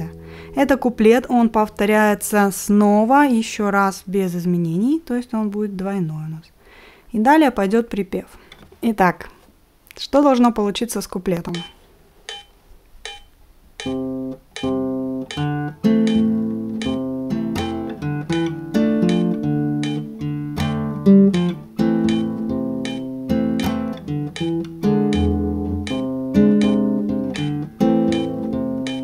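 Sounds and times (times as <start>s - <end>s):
classical guitar fingerstyle: 13.8s - 29.0s.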